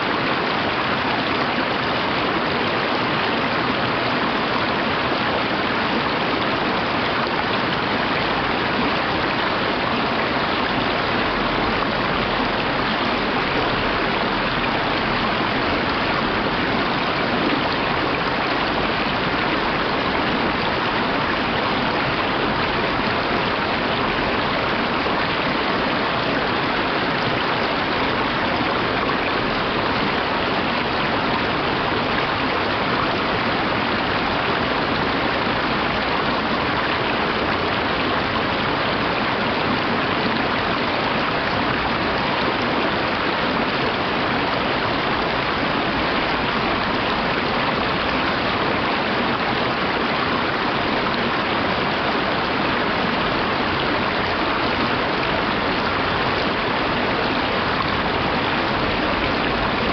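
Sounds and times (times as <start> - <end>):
stream rushing over rocks: 0.0 - 59.9.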